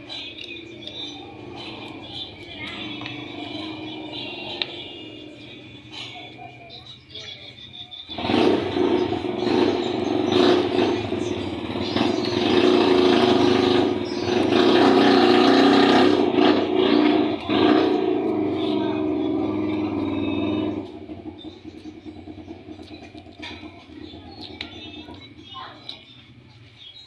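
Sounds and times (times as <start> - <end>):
vehicle engine running: 0.0 - 27.0.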